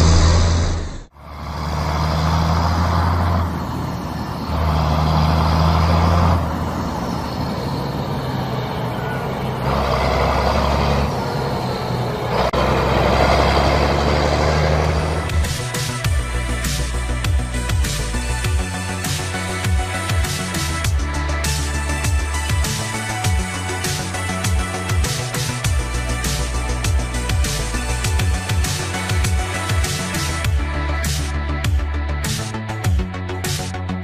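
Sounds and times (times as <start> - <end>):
low motor hum: 0.0 - 18.8.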